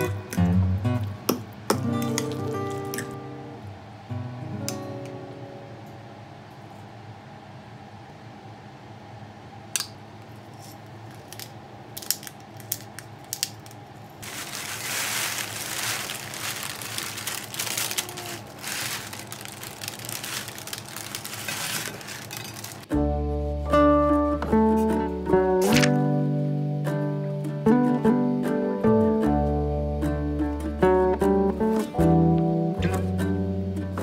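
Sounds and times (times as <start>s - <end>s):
paper bag crinkling: 14.2s - 22.9s
potato wedges tumbling onto plate: 14.2s - 22.9s.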